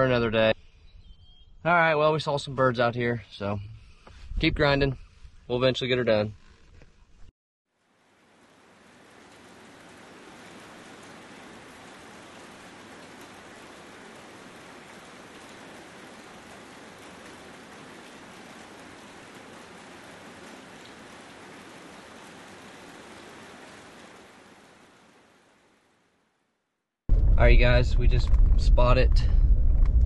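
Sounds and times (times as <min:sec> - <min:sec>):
rain-like hiss: 0:07.7 - 0:26.6.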